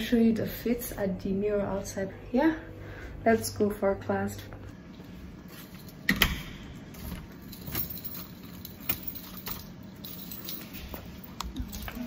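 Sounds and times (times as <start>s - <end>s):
keys jangling: 6.9s - 12.0s.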